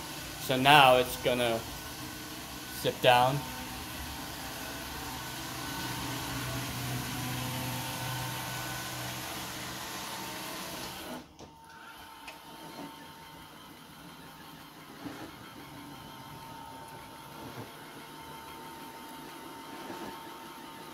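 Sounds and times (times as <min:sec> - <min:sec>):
robot vacuum motor hum: 0:00.0 - 0:20.9.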